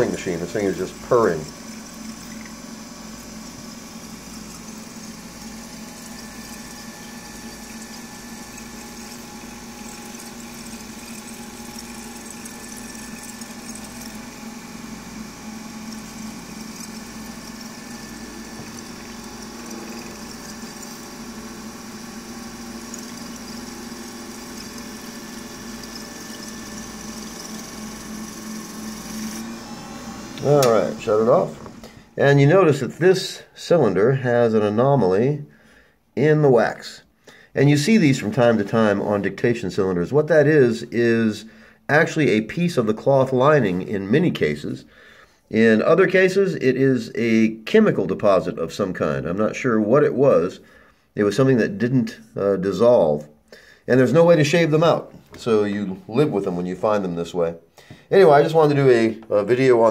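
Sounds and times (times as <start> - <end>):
machine humming with fine hiss: 0.0 - 32.8.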